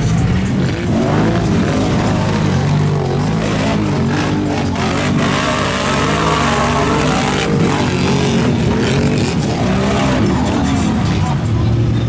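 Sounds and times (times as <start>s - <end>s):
off-road engine revving: 0.0s - 12.0s.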